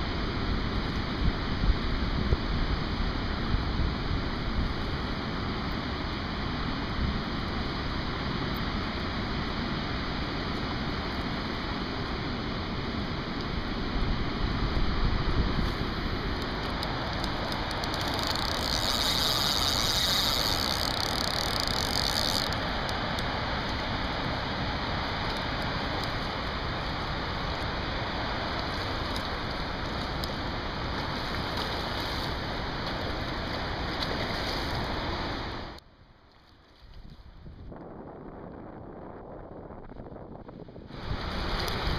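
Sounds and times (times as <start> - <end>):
flooded river rushing: 4.4 - 35.8.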